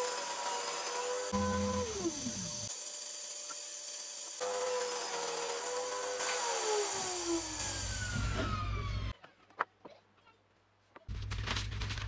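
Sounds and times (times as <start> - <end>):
table saw motor whining: 0.0 - 9.2.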